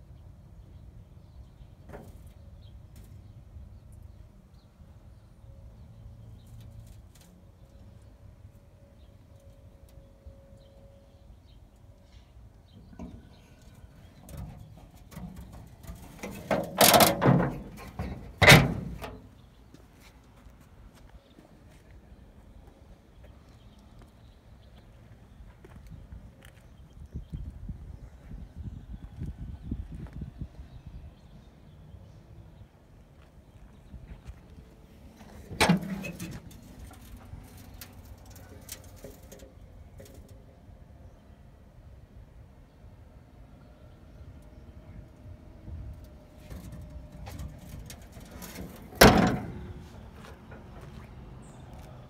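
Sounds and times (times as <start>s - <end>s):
knocks and scraping on metal hood: 14.2s - 19.2s, 35.3s - 40.3s, 46.4s - 50.0s
steel hood slamming shut: 14.3s - 19.2s, 35.4s - 36.7s, 47.2s - 49.8s.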